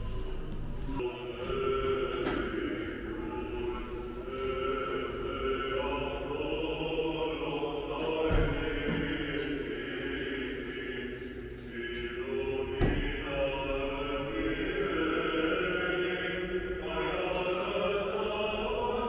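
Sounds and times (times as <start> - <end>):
choir chanting long notes: 0.0 - 19.0.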